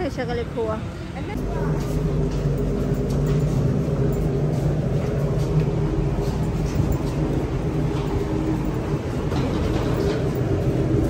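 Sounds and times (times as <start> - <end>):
low mechanical drone: 0.0 - 11.0.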